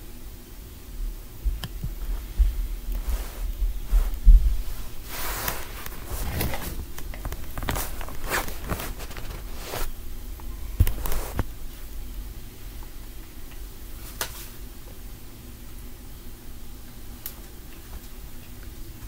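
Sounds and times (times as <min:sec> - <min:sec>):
rustling: 0:01.5 - 0:10.0, 0:10.7 - 0:12.0.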